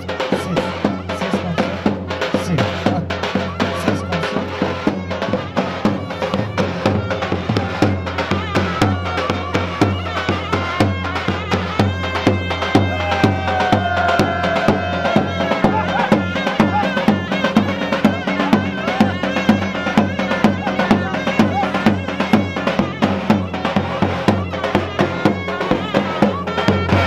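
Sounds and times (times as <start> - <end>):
fast drum beat: 0.0 - 27.0
shrill reed melody: 0.0 - 27.0.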